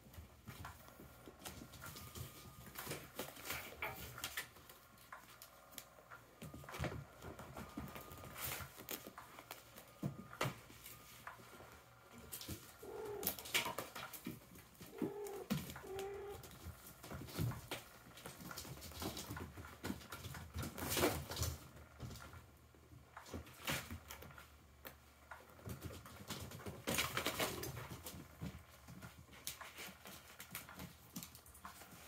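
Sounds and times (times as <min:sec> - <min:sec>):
kittens scratching and scuffling: 0:00.0 - 0:32.0
low cooing calls: 0:12.6 - 0:13.7, 0:14.8 - 0:16.5.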